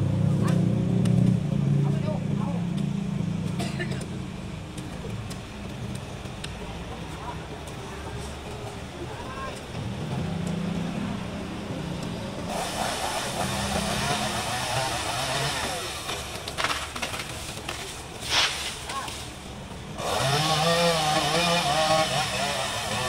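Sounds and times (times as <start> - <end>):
chainsaw engine revving: 12.4 - 17.4, 20.0 - 23.0
brief sharp hiss: 18.2 - 19.1.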